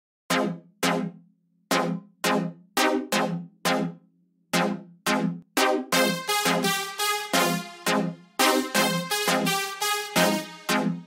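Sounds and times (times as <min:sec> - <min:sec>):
sharp synth notes: 0:04.6 - 0:11.0.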